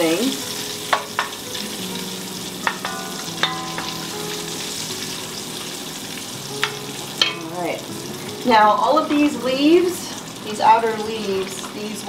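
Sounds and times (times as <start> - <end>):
bacon sizzling: 0.0 - 12.0
spoon knocking against pot: 2.6 - 4.3.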